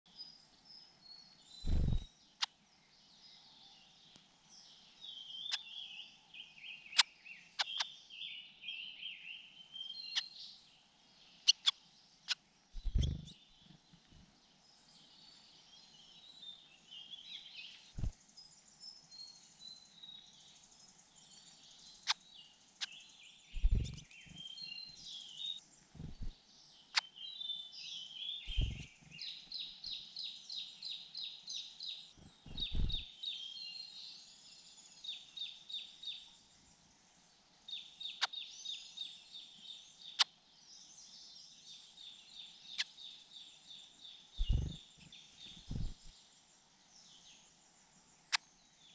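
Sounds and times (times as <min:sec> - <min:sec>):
songbirds chirping: 0:00.0 - 0:48.9
dull low thumps: 0:01.7 - 0:02.0, 0:12.8 - 0:13.3, 0:23.6 - 0:24.0, 0:26.0 - 0:26.3, 0:28.5 - 0:28.8, 0:32.2 - 0:33.0, 0:44.4 - 0:44.8, 0:45.6 - 0:46.1.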